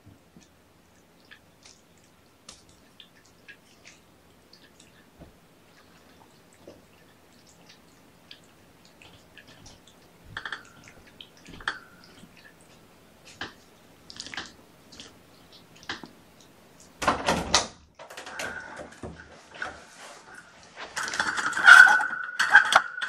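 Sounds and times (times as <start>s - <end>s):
rustling clatter: 18.0s - 23.0s.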